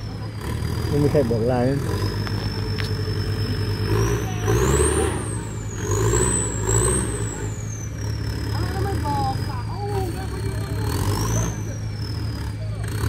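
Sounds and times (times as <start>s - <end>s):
off-road vehicle engine revving: 0.0s - 13.0s.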